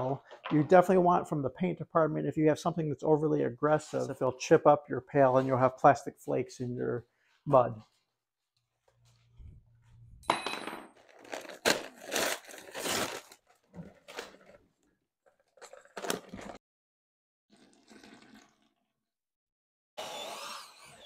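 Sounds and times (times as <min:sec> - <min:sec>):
paper sack tearing open: 0:11.1 - 0:14.6, 0:15.5 - 0:16.6.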